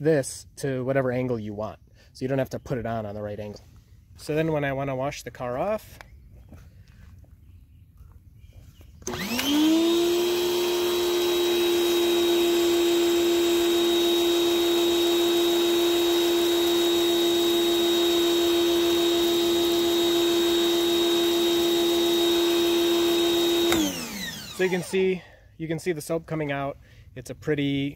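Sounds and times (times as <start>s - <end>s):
pressure washer pump humming: 9.0s - 25.3s.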